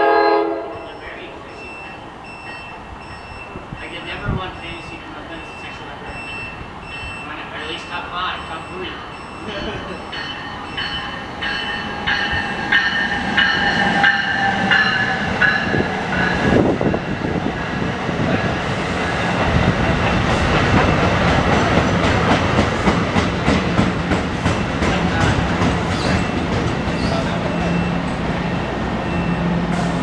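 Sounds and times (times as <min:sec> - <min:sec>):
train cars rumbling past: 0:00.0 - 0:30.0
train bell ringing: 0:00.7 - 0:17.1, 0:27.0 - 0:28.2, 0:29.0 - 0:29.6
wheels clickety-clack on rail joints: 0:01.5 - 0:30.0.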